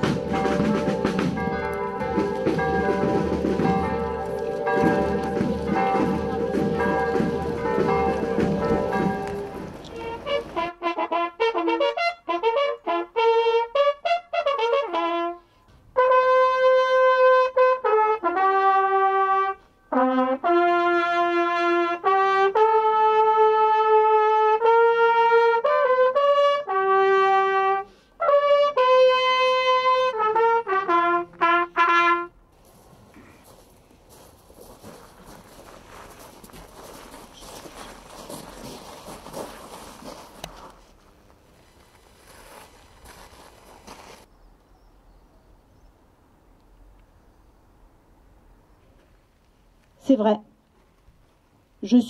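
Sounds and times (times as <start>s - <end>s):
bugles and trumpets playing: 0.0s - 32.4s.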